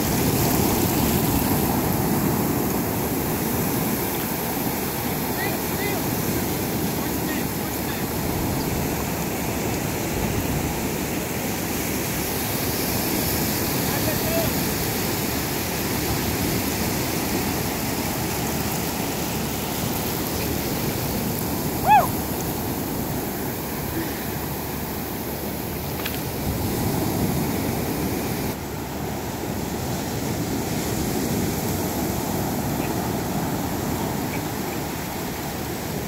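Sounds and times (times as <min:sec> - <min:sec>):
waves breaking on beach: 0:00.0 - 0:36.0
high-pitched cry: 0:21.8 - 0:22.2.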